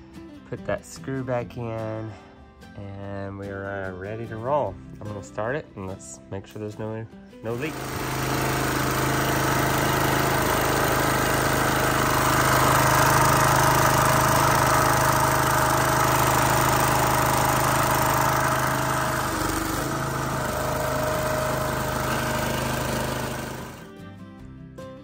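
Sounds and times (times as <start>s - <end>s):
small gas engine running: 7.5s - 24.0s.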